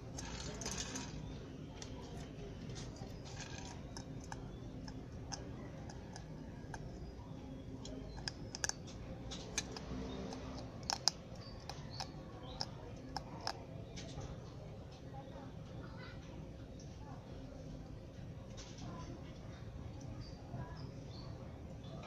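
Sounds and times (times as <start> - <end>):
pellets clicking against steel bowl: 0.0 - 1.2, 1.8 - 7.1, 7.7 - 14.1.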